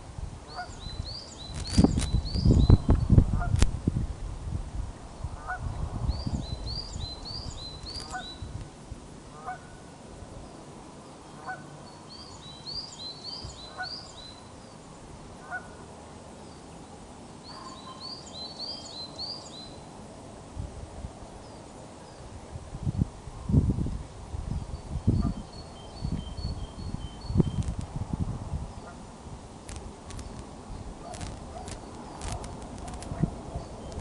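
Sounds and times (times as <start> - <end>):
wind rumble on microphone: 0.0 - 10.5, 20.4 - 21.6, 22.2 - 34.0
osprey calling: 6.6 - 8.5.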